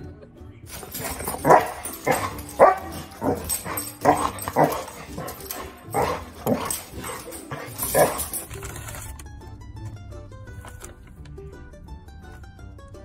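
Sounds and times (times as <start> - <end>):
dogs barking: 0.7 - 8.5.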